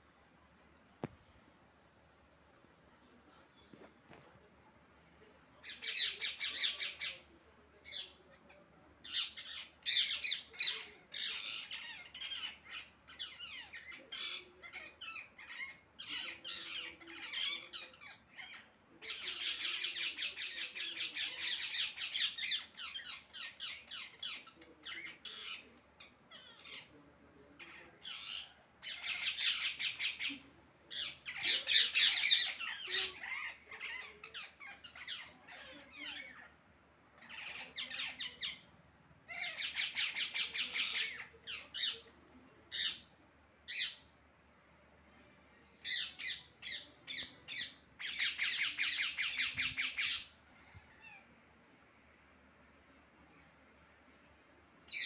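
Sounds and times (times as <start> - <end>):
parakeets screeching: 9.0 - 26.9, 27.6 - 36.5, 37.2 - 38.7, 39.3 - 42.0, 45.8 - 51.2.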